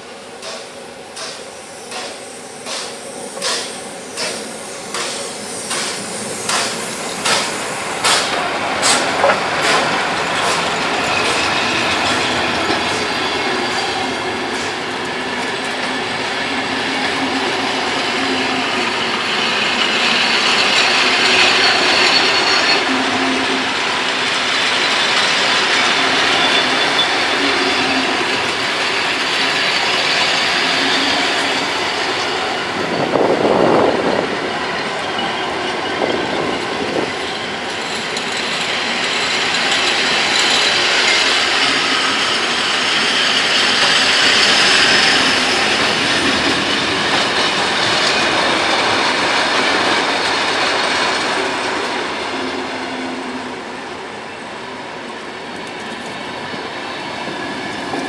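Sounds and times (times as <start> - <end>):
steam locomotive chuffing: 0.0 - 53.6
coaches rumbling and clattering: 6.5 - 13.1.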